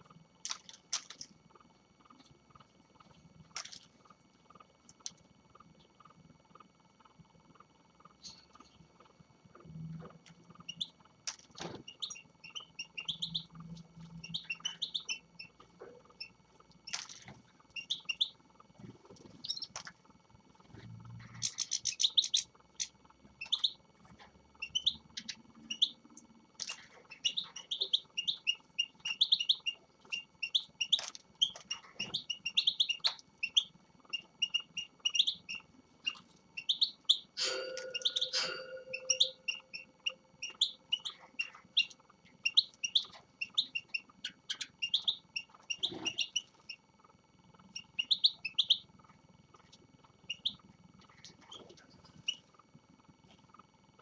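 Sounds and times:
finches chirping and twittering: 0:09.5 - 0:19.9, 0:20.6 - 0:46.8, 0:47.4 - 0:49.0, 0:49.6 - 0:52.5.

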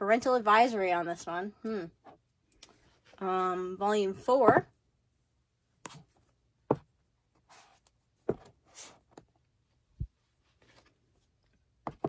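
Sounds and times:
books knocking and tapping: 0:06.7 - 0:07.0, 0:08.2 - 0:08.6
book covers rustling: 0:10.3 - 0:12.0.

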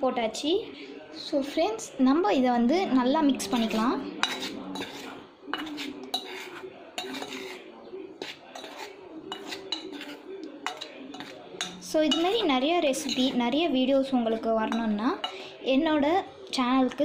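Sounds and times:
spoon clinking and scraping bowl: 0:03.3 - 0:15.6.

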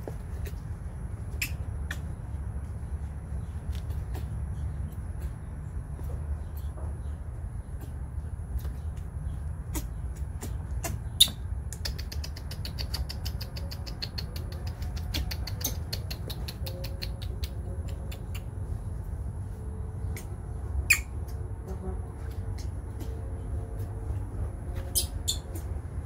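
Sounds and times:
steady low rumble: 0:00.0 - 0:26.0
baby monkey squeaking: 0:01.3 - 0:02.1, 0:09.6 - 0:17.3, 0:20.1 - 0:21.3, 0:24.8 - 0:25.7.

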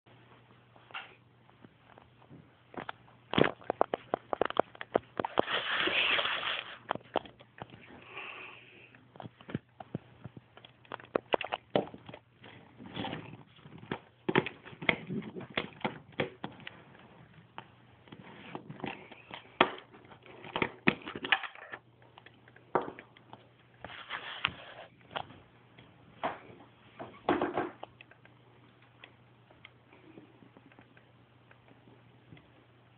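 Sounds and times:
faint low hum: 0:00.1 - 0:32.9
rustling: 0:00.8 - 0:08.0.

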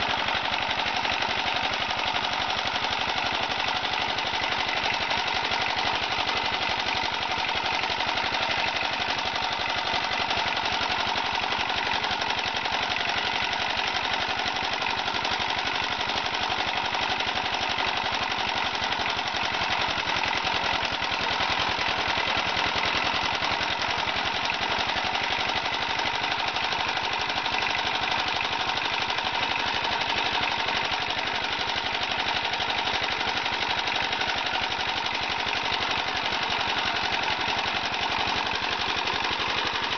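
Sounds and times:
motor-driven extruder clattering: 0:17.7 - 0:39.9.

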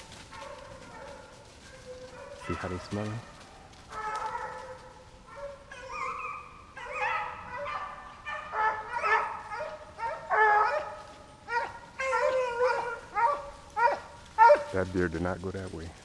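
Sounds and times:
hounds baying: 0:00.0 - 0:15.2.

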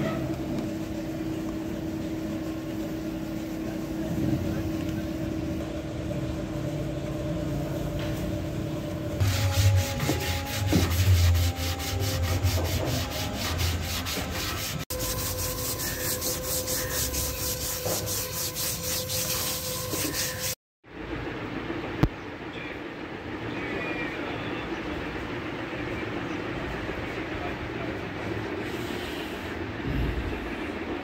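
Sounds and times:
sandpaper rubbing on wood: 0:09.2 - 0:20.6.

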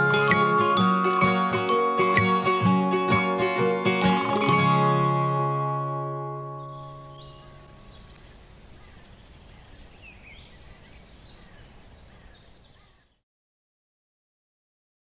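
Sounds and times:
plucked guitar notes: 0:00.0 - 0:07.8
outdoor background noise: 0:00.0 - 0:13.2
bird chirps: 0:06.4 - 0:13.2.

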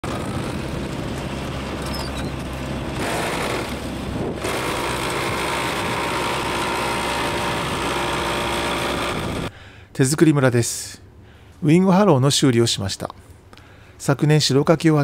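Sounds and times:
tractor engine running: 0:00.0 - 0:09.6.

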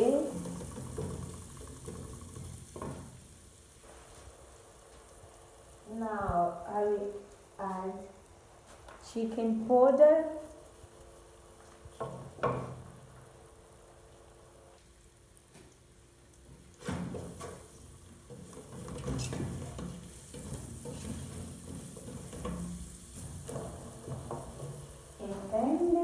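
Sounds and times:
vegetables frying in oil: 0:00.0 - 0:26.0
wooden spoon scraping pot: 0:17.1 - 0:26.0.

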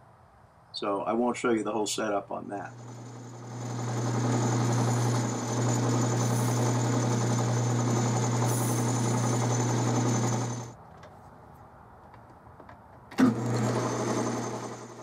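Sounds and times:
metal lathe motor hum and whirr: 0:02.7 - 0:10.7, 0:13.2 - 0:15.0.

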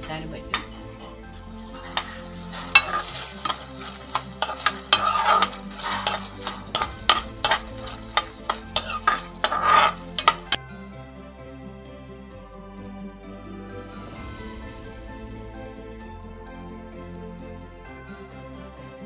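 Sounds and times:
metal clinking on pan: 0:00.0 - 0:10.6
syrup sizzling: 0:00.5 - 0:10.6
metal spatula scraping a pan: 0:01.4 - 0:10.6.

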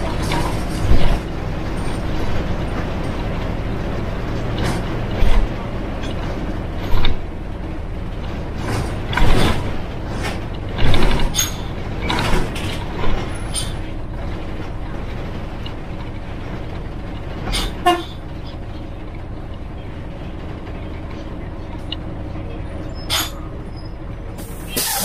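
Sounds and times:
bus engine droning: 0:00.0 - 0:25.0
brief squeal: 0:22.8 - 0:24.0, 0:24.6 - 0:25.0
air brakes hissing: 0:24.4 - 0:25.0.

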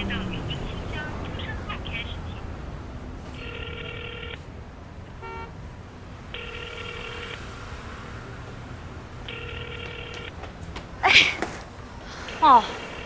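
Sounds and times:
low street hum: 0:00.0 - 0:13.0
telephone ringback tone: 0:03.4 - 0:04.4, 0:06.4 - 0:07.4, 0:09.3 - 0:10.3.

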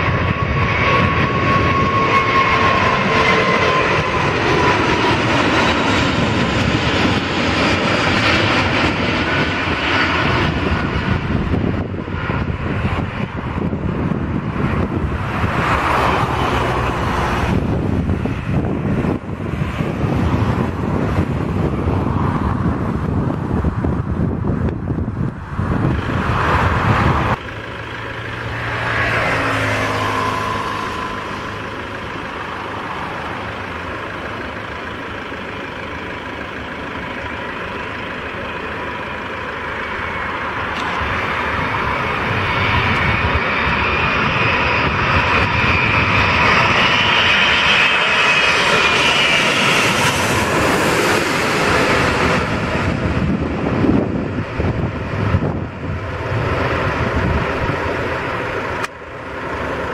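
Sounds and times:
departing jet rumble: 0:00.0 - 0:59.9
landing jet whine and rumble: 0:00.0 - 0:59.9.

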